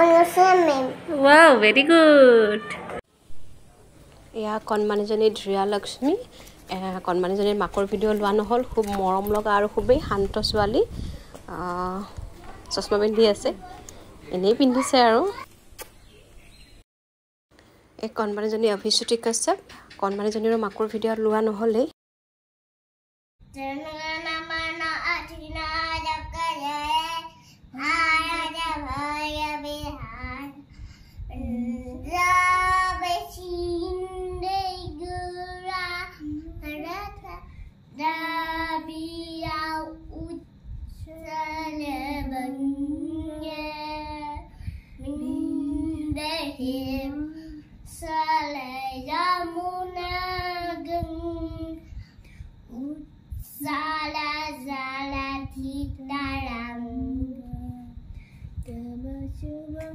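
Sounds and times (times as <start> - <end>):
young girl singing: 23.5 - 59.9.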